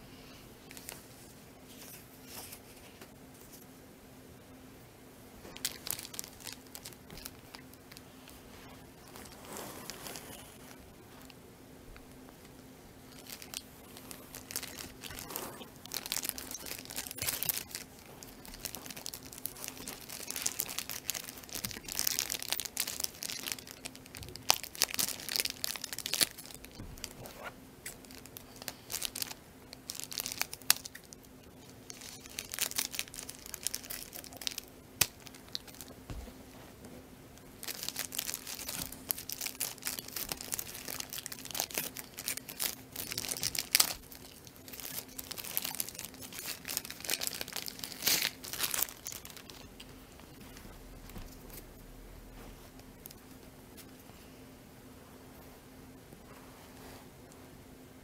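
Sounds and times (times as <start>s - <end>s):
plastic bag crinkling and tearing: 5.4s - 11.3s, 13.1s - 36.0s, 37.6s - 51.7s.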